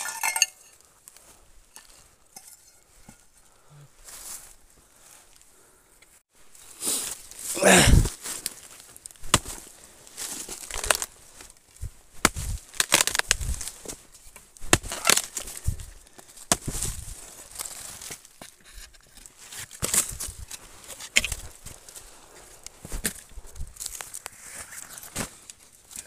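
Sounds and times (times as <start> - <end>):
dry leaves rustling: 6.4 - 15.7
machete striking wood: 9.2 - 9.6, 14.6 - 15.4, 16.5 - 16.8.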